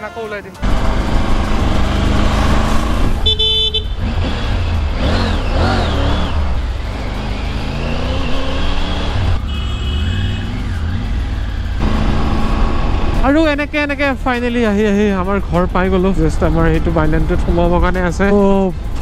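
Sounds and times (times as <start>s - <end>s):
vehicle horn beeping: 3.2s - 4.1s, 9.4s - 10.5s.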